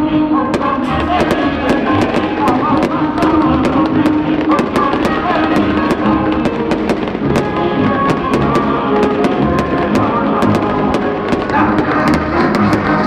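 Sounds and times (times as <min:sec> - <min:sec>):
loud music: 0:00.0 - 0:13.0
firework shells bursting: 0:00.6 - 0:13.0.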